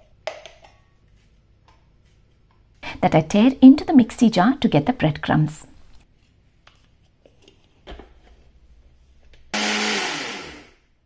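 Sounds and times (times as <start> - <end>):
mixer grinder motor whirring: 9.5 - 10.9.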